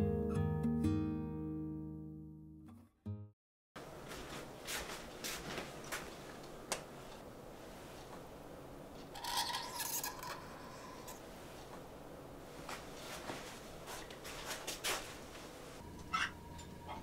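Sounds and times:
soft rustles and taps: 4.1s - 7.2s.

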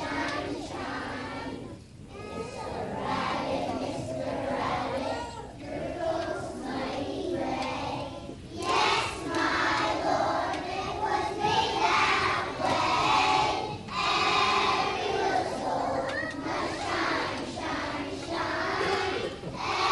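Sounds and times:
children singing together: 0.0s - 19.9s.

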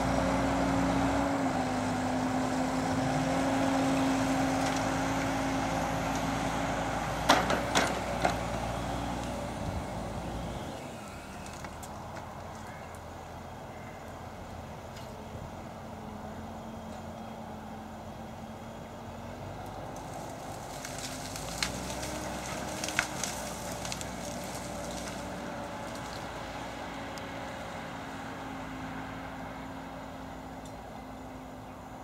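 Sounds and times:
tractor engine under load: 0.0s - 32.0s
crackling: 19.9s - 26.3s.

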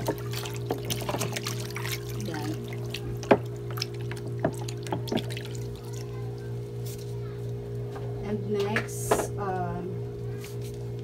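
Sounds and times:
water sloshing and splashing: 0.0s - 7.7s.

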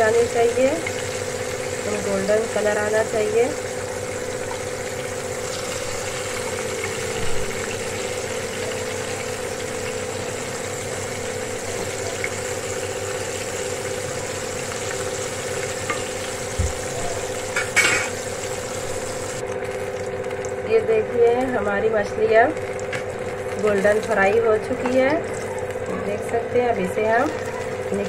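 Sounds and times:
fish sizzling in hot oil: 0.0s - 20.6s, 21.8s - 28.0s.

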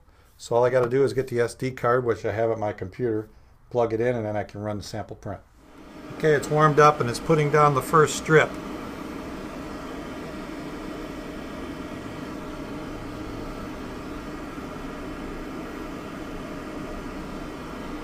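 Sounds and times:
printer mechanical hum: 5.6s - 18.0s.

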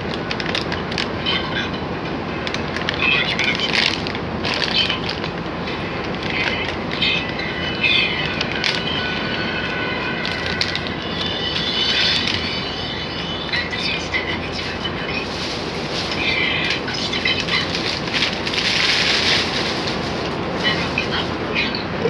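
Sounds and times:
steady loud rushing noise: 0.0s - 22.0s
plastic bag crinkling: 2.7s - 5.4s, 14.6s - 21.5s.

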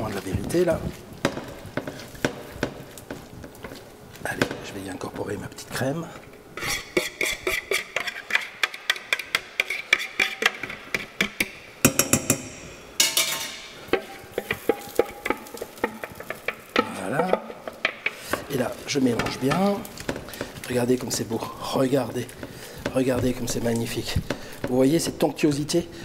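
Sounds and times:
spoon knocking against saucepan: 7.7s - 18.4s.

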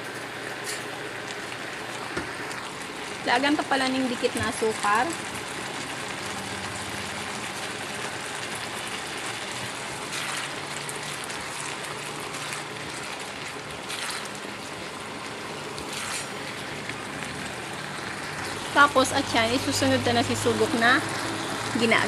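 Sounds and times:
food sizzling in a frying pan: 0.2s - 22.0s
spatula stirring swishes: 9.6s - 14.7s, 15.8s - 16.9s.

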